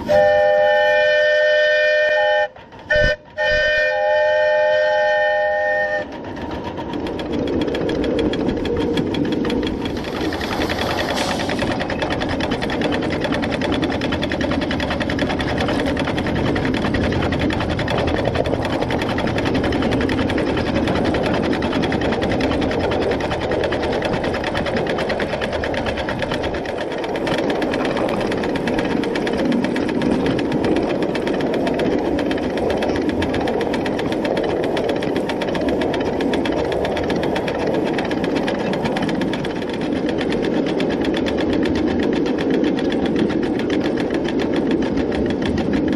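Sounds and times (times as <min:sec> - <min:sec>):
steam locomotive clattering on rails: 0:00.0 - 0:45.9
steam hiss: 0:10.2 - 0:11.9.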